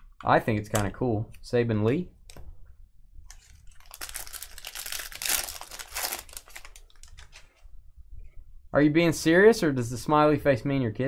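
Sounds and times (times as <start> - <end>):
wrapper crinkling and tearing: 3.3 - 7.5.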